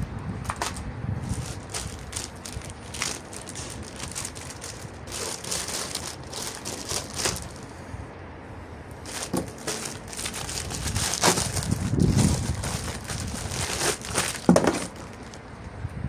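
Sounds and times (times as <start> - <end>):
bubble-wrap bag crinkling: 0.5 - 7.7, 9.0 - 15.7
plastic packaging crinkling: 0.5 - 7.7, 9.0 - 15.7
paper manual sliding out: 9.1 - 15.4.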